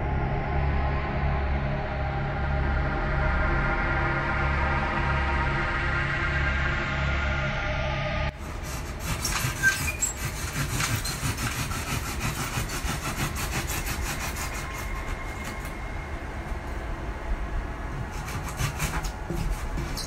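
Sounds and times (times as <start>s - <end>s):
blade sawing through styrofoam: 8.3s - 16.1s, 17.9s - 20.0s.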